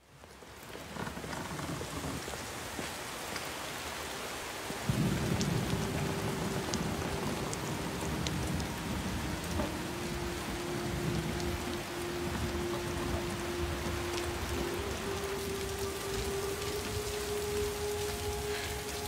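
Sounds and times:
steady rain falling: 0.0 - 19.0
low rumble of thunder: 4.8 - 18.9.

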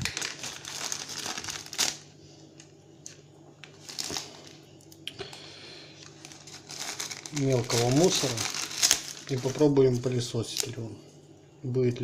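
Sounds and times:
plastic bag rustling and crinkling: 0.0 - 2.2, 3.6 - 4.6, 6.0 - 10.8.

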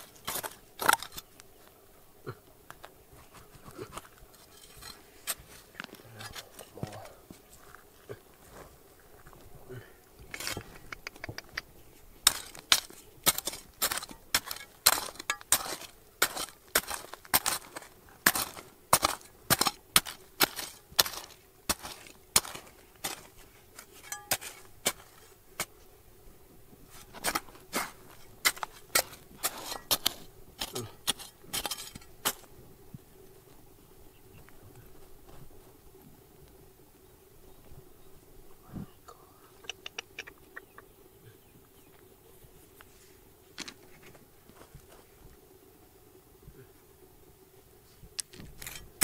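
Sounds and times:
hard objects clinking: 12.3 - 25.2.

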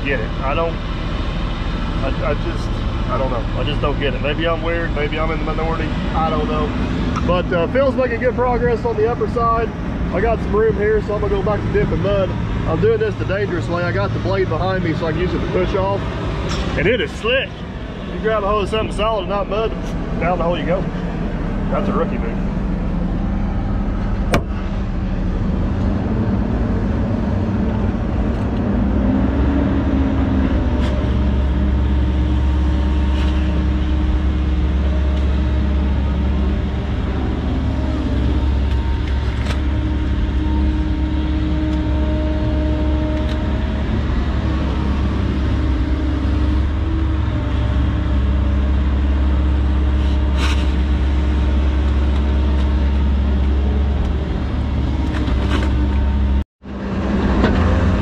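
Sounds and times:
excavator diesel engine running: 0.0 - 58.0
hydraulic whine: 0.0 - 58.0.

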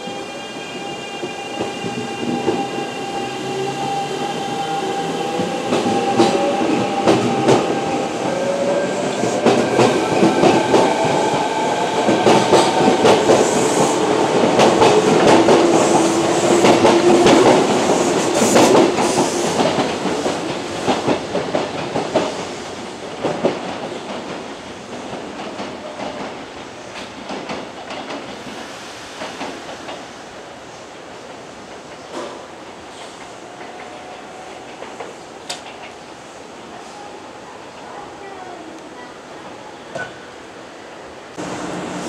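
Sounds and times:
electric train motor whine: 41.4 - 42.0.

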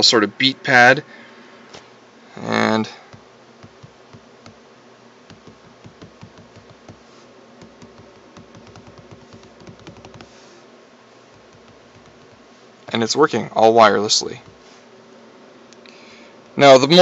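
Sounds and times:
faint steady hiss: 0.0 - 17.0
fingertips tapping touchscreen: 3.1 - 4.6, 5.3 - 10.4, 11.3 - 12.5, 14.4 - 14.7.

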